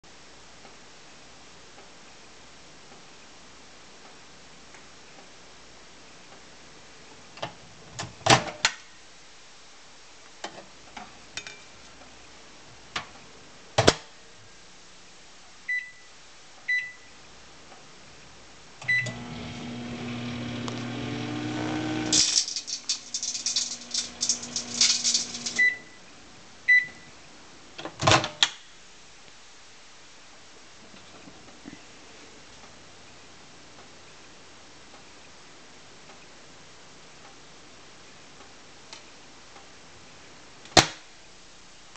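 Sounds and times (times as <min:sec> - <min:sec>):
keypad beeps: 0:15.7 - 0:16.1, 0:16.7 - 0:17.1, 0:18.8 - 0:19.2, 0:25.6 - 0:26.0
microwave oven humming: 0:18.8 - 0:25.8
microwave oven beeping: 0:18.8 - 0:26.0
sparks crackling: 0:20.4 - 0:25.7.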